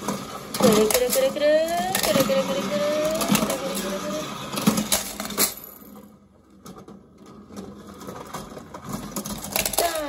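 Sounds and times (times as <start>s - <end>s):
toy car clattering down chute: 0.0s - 10.0s
toy dispenser cranking clicks: 0.4s - 5.8s, 9.1s - 10.0s.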